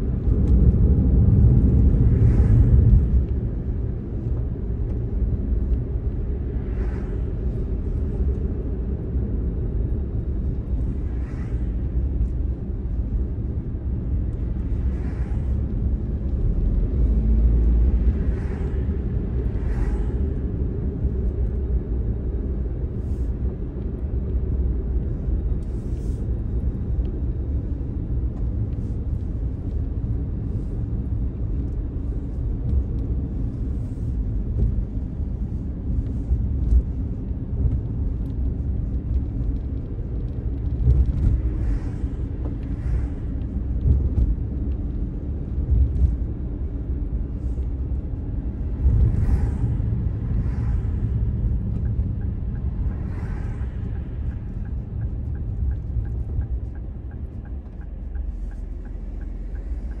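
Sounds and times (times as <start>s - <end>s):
car engine and tyre rumble: 0.0s - 60.0s
turn signal ticking: 51.4s - 60.0s.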